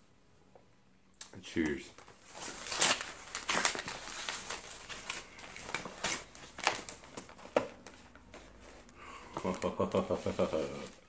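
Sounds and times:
envelope ripping and crinkling: 1.9 - 9.7.

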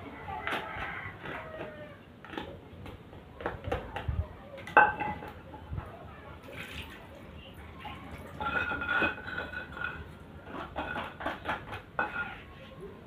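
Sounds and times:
utensils knocking in a bowl: 7.9 - 12.4.

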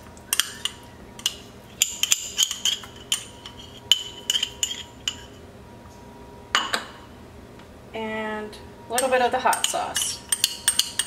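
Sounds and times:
metal spoon clinking on jar: 9.0 - 11.0.

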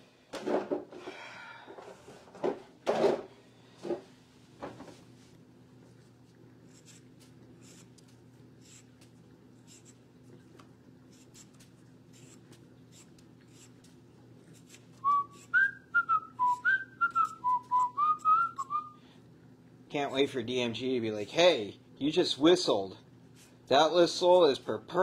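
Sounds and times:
steady low hum: 0.0 - 25.0
peeler scraping potato skin: 6.7 - 8.9, 11.1 - 15.7
person whistling a tune: 15.0 - 19.0.

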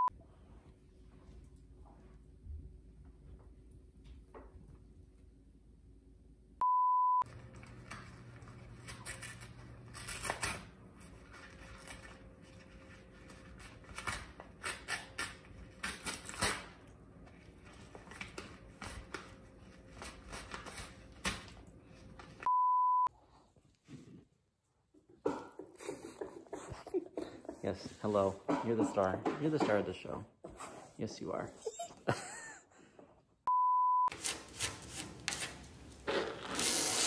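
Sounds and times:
short high beeps: 22.5 - 23.1, 33.5 - 34.1
paper bag rustling and ripping: 34.2 - 37.0.

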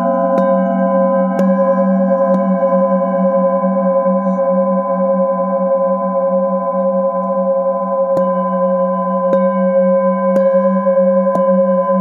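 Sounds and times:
mallet striking singing bowl: 0.0 - 3.0
singing bowl ringing: 0.0 - 12.0.

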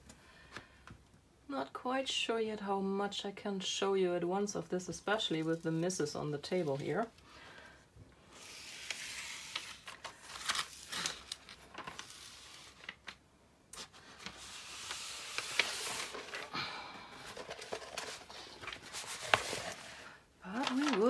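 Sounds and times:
plastic film crinkling: 8.4 - 13.2, 13.8 - 16.6, 17.2 - 21.0.

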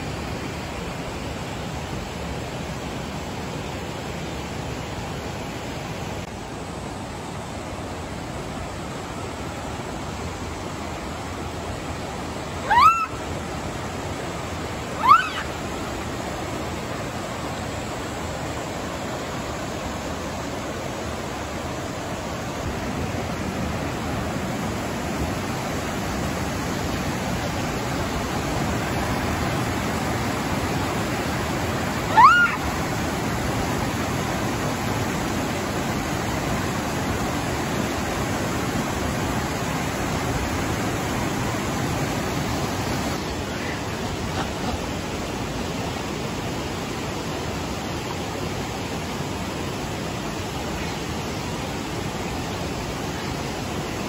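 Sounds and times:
river rushing: 0.0 - 54.0
monkey rising calls: 12.5 - 13.4, 14.9 - 15.7, 32.0 - 32.8, 43.4 - 44.8.

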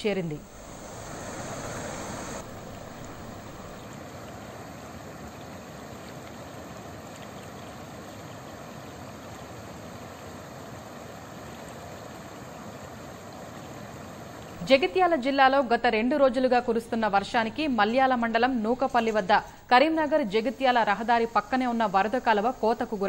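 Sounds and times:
floodwater rushing in stream: 0.4 - 14.6.

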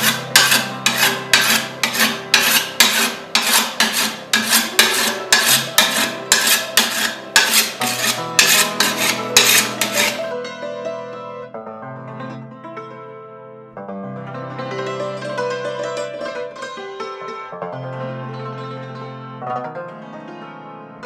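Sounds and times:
whetstone scraping scythe blade: 0.0 - 10.2.

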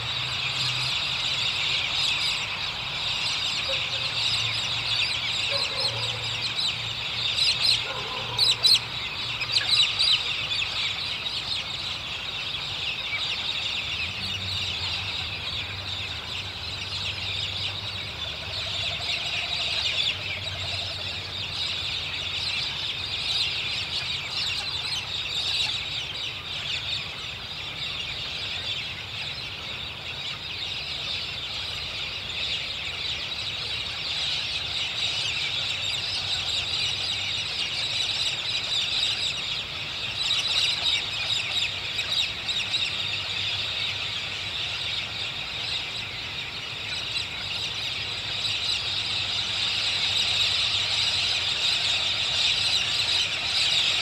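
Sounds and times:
bird squawks: 0.0 - 31.9
flock of birds calling: 0.0 - 54.0.

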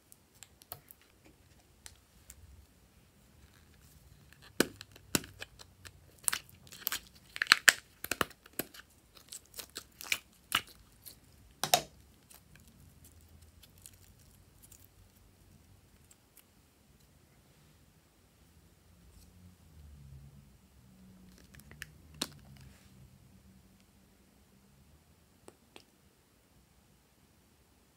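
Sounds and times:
slime popping and crackling: 4.3 - 15.2.

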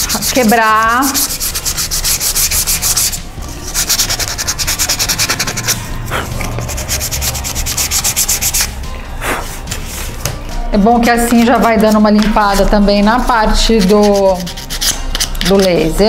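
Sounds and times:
sandpaper rubbing on wood: 0.0 - 10.1, 13.7 - 15.3.

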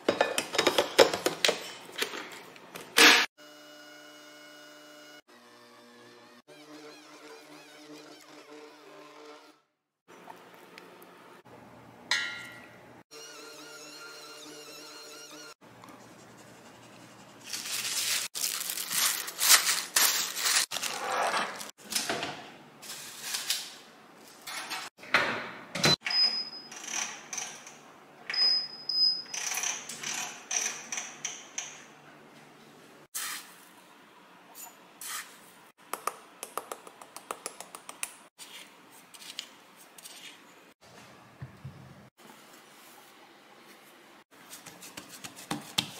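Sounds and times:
kitchen handling sounds: 0.0 - 3.3
oven control panel beeps: 25.8 - 26.7, 28.3 - 29.3.

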